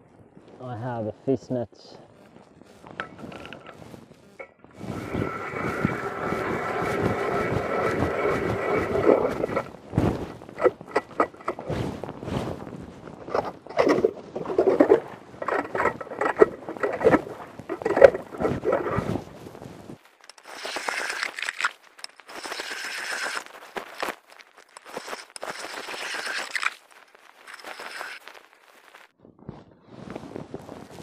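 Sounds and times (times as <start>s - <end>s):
hand ice auger crunching ice: 4.4s - 11.8s, 13.2s - 19.3s, 20.1s - 29.1s.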